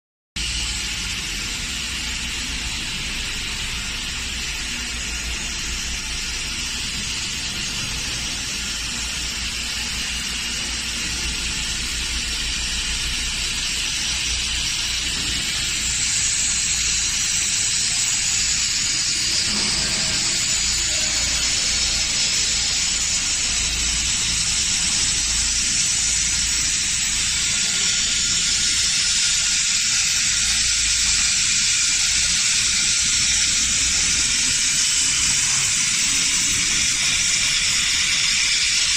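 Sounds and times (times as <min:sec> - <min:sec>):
laser welding hiss: 0:00.4 - 0:38.9.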